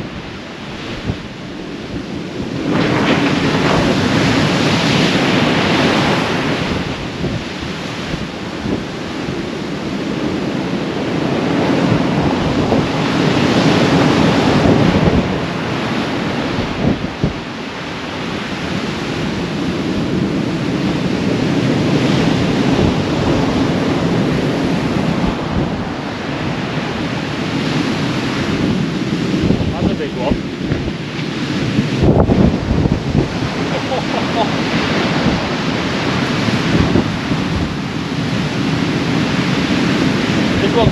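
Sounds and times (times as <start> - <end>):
heavy surf breaking: 0.0 - 40.9
wind buffeting microphone: 0.0 - 40.9.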